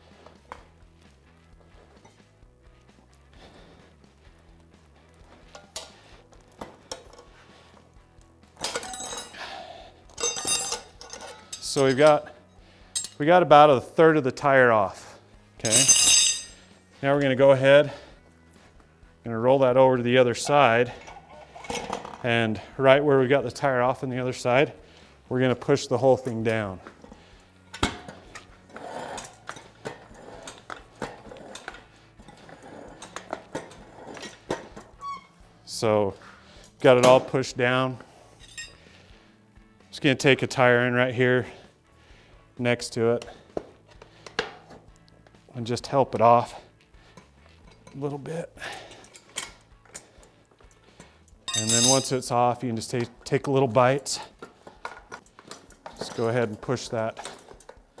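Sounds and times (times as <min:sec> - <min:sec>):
tire irons clinking on metal: 0:08.5 - 0:09.5, 0:10.1 - 0:13.3, 0:15.6 - 0:16.8, 0:38.4 - 0:38.9, 0:47.1 - 0:53.4.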